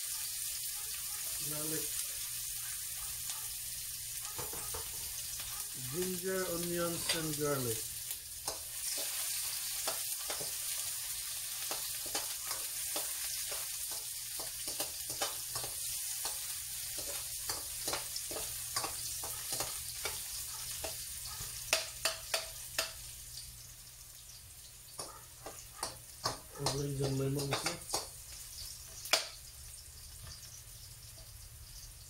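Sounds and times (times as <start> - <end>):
food sizzling in oil: 0.0 - 32.0.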